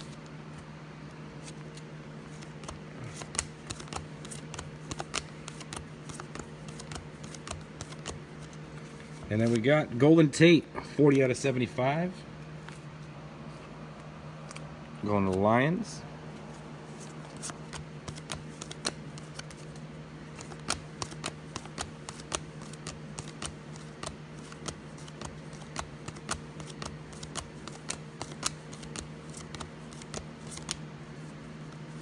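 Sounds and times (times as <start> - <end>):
cards flipping with light clicks: 1.4 - 9.6, 14.0 - 15.4, 16.4 - 30.9.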